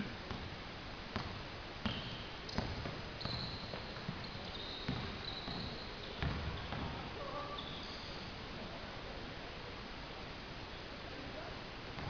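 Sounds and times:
basketball bouncing on court: 0:00.3 - 0:00.5, 0:01.1 - 0:07.1
sneaker squeaks on floor: 0:01.8 - 0:08.3.

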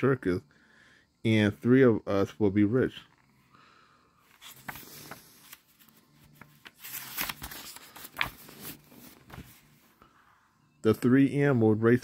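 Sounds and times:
book pages turning: 0:04.2 - 0:10.0.

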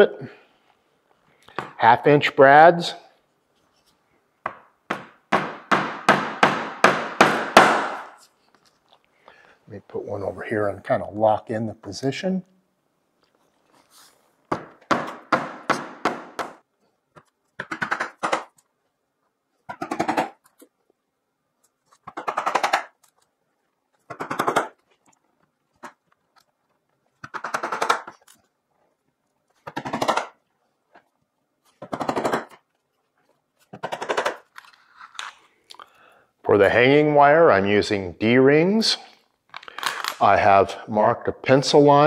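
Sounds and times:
hammer tapping nails: 0:04.4 - 0:08.2, 0:14.5 - 0:16.6.

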